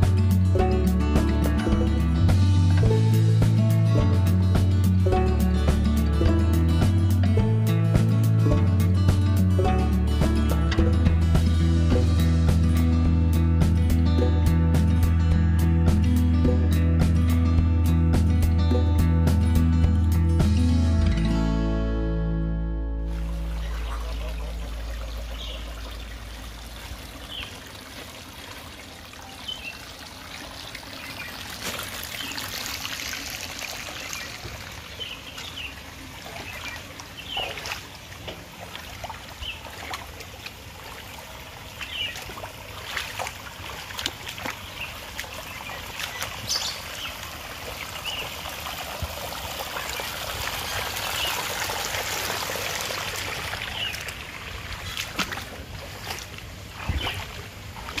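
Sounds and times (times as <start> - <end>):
water running over stones: 23.1 - 58.0.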